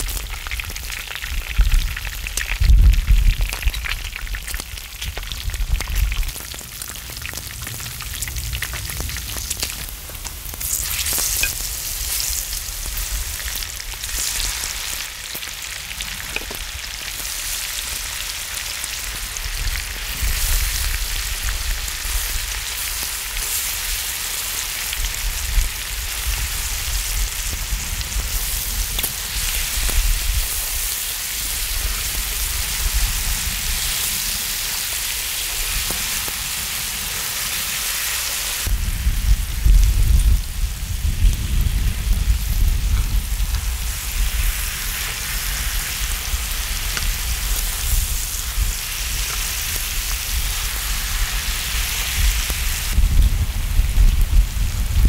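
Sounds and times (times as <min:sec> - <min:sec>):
meat sizzling on griddle: 0:00.0 - 0:55.0
metal tongs stirring food: 0:10.6 - 0:12.4.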